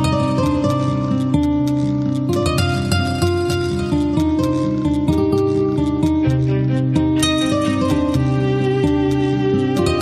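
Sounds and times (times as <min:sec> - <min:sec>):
plucked-string notes: 0:00.0 - 0:10.0.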